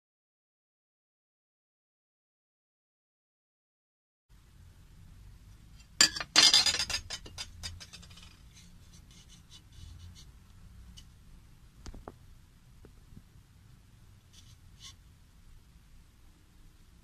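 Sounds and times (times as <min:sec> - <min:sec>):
metal pieces scraping and rattling: 0:06.0 - 0:08.6.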